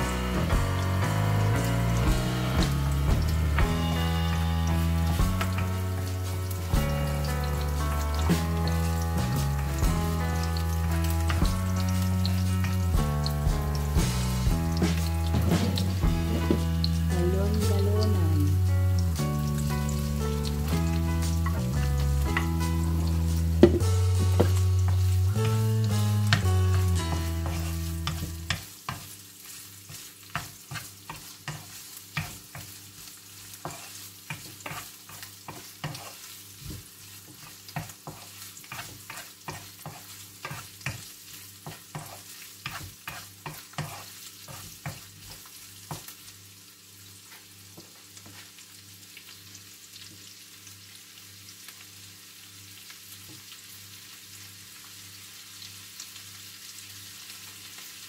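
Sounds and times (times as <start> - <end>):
background music: 0.0 - 28.5
garlic and onion sizzling: 0.0 - 58.0
wooden spatula scraping pan: 14.8 - 16.7, 26.4 - 45.4.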